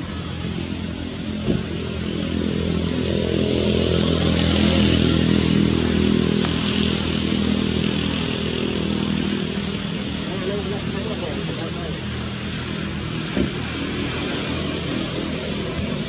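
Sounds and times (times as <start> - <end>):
vehicle engine running: 0.0 - 16.0.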